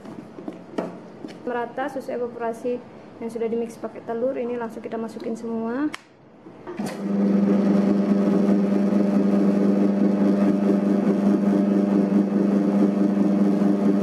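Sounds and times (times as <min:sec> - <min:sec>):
electric dough mixer humming: 0:06.8 - 0:14.0.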